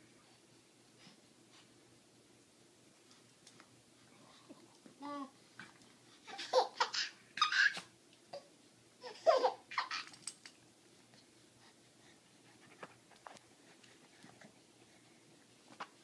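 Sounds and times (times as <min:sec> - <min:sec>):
baby laughing: 0:06.2 - 0:07.9, 0:09.0 - 0:10.3.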